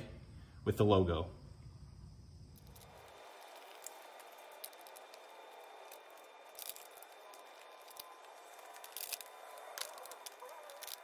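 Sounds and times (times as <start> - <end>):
vinyl sticker crinkling: 2.6 - 11.0.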